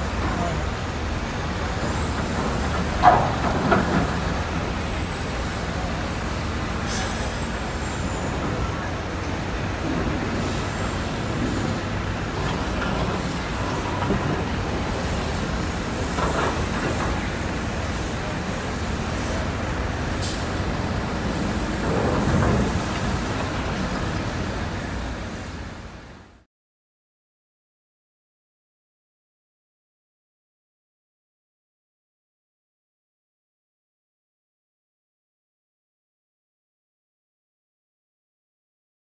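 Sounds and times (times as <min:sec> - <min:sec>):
ferry engine rumble and hiss: 0:00.0 - 0:26.5
heavy vehicles on quay: 0:00.0 - 0:26.5.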